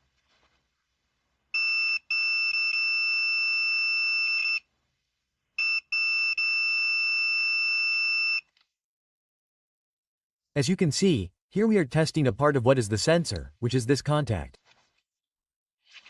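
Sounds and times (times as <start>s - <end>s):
multimeter continuity beep: 5.6s - 8.5s.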